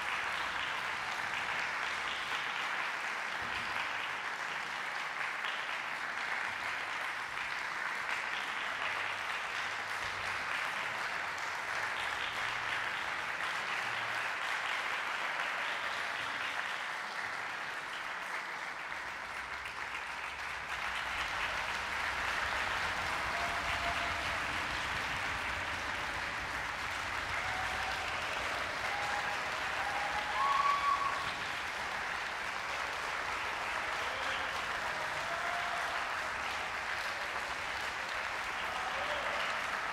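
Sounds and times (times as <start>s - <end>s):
audience applauding: 0.0s - 39.9s
pitched calls from audience: 21.0s - 39.9s.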